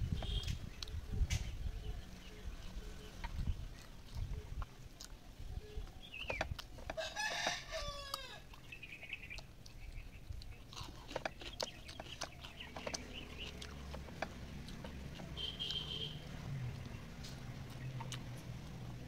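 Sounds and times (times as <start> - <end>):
soft clicks and smacks of eating: 0.4 - 1.5, 3.1 - 5.2, 5.8 - 7.0, 8.1 - 19.0
rooster crowing: 7.0 - 8.4.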